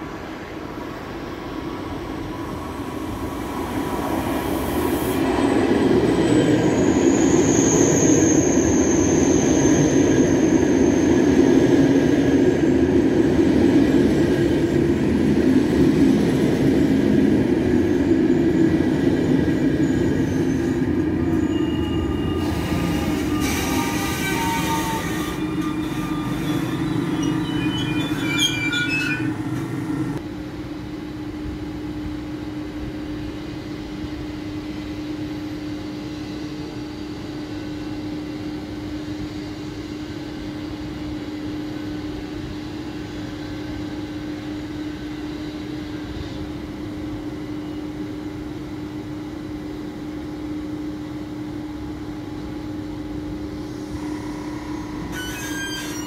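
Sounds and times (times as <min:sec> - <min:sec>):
brief high squeals: 0:06.8 - 0:11.2, 0:20.2 - 0:30.2, 0:53.7 - 0:56.0
locomotive electrical hum: 0:21.4 - 0:30.2.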